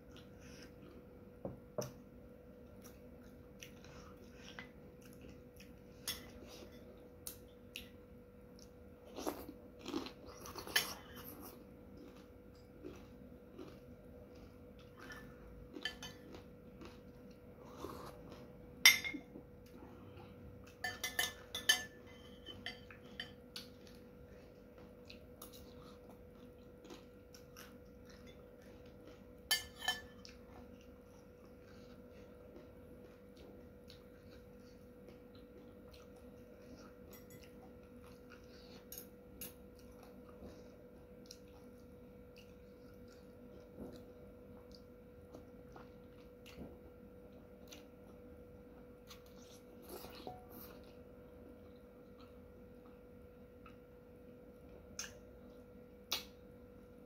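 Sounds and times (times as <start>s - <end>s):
faint steady hum: 0.0s - 57.0s
soft chewing: 0.0s - 57.0s
spoon clinking against bowl: 20.8s - 23.4s.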